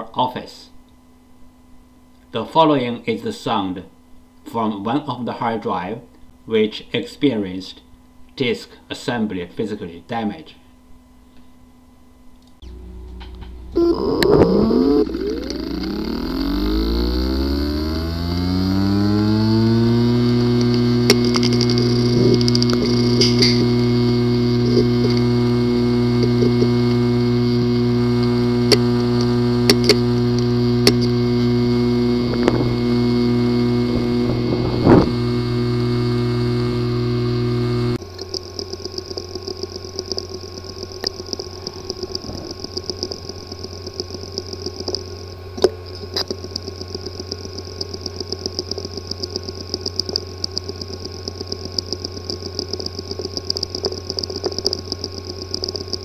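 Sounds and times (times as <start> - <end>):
hard drive buzzing: 11.0 - 56.0
hard drive clicks: 12.4 - 56.0
high whine: 12.5 - 56.0
hard drive ticking rapidly: 12.6 - 56.0.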